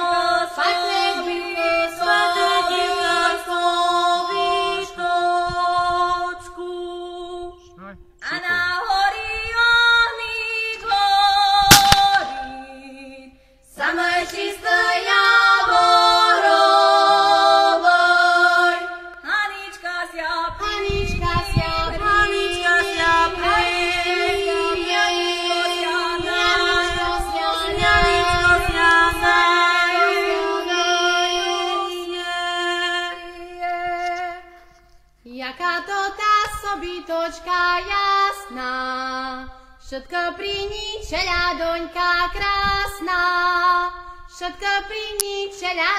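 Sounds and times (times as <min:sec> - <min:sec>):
several voices singing folk song: 0:00.0 - 0:07.0, 0:13.7 - 0:34.7.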